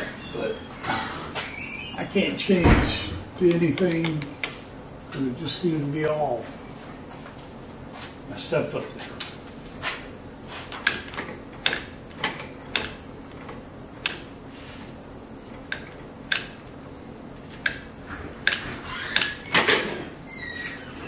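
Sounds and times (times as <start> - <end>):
steady low hum: 0.0 - 21.0
sharp metallic clicks and taps: 10.8 - 14.3, 15.6 - 16.6, 17.6 - 18.6.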